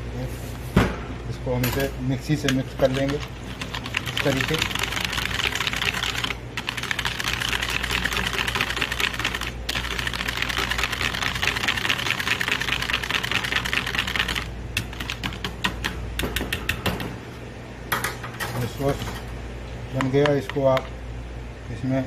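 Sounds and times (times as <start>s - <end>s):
whisk clicking against plastic bowl: 2.4s - 9.9s.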